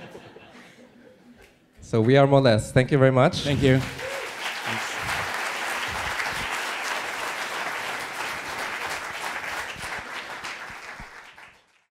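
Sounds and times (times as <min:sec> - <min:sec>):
audience applauding: 0:03.5 - 0:11.9.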